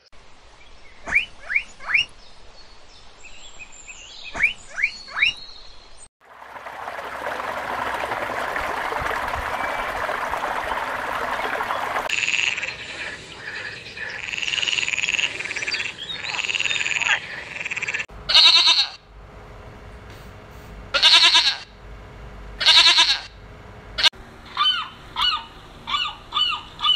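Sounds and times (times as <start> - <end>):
water churning and splashing: 6.2 - 12.1
frog croaking: 12.1 - 18.0
goat bleating: 18.3 - 19.0, 21.0 - 21.7, 22.6 - 23.3.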